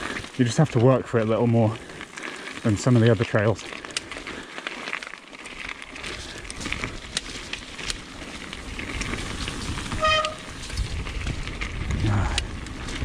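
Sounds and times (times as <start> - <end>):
bike tyres rolling over stony trail: 0.0 - 13.0
stones and bike rattling: 0.0 - 13.0
wind rumbling on microphone: 6.0 - 13.0.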